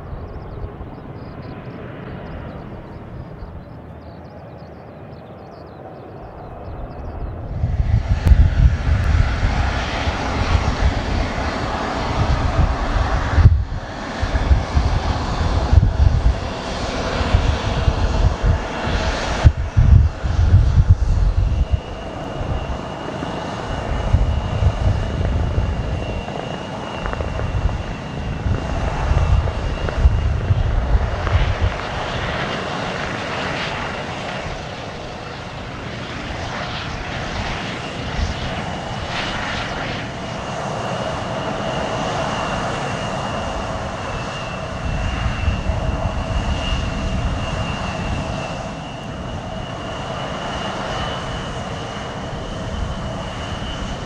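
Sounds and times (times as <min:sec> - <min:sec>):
aircraft engine rumble: 0:00.0 - 0:54.0.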